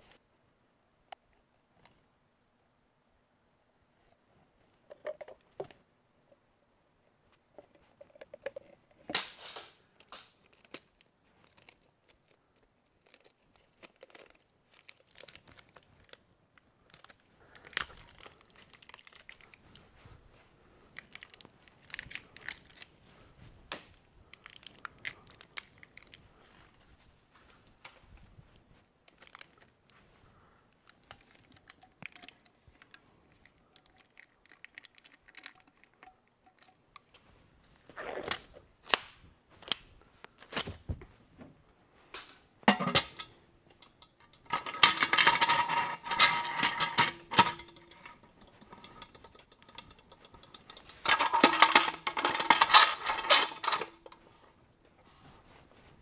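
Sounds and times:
metal lid and clamps clattering: 42.7s - 54.1s.

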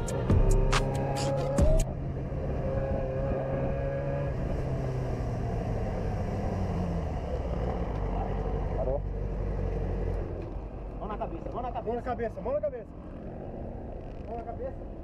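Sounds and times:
motorcycle engine running: 0.0s - 10.9s.

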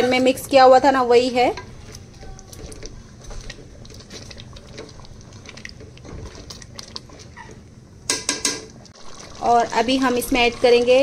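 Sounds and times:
spoon scraping cooking pan: 0.0s - 8.8s
food frying: 0.0s - 11.0s.

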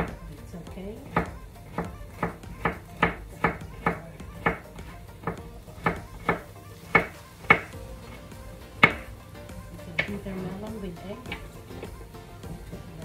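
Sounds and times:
knife chopping on cutting board: 1.1s - 7.7s.

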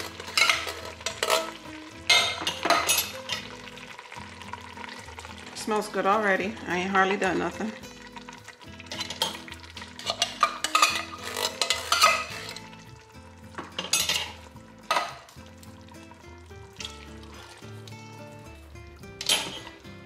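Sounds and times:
metal spoon scraping tin can: 0.0s - 3.1s, 8.9s - 12.7s
light sizzle from pot: 0.0s - 20.0s.

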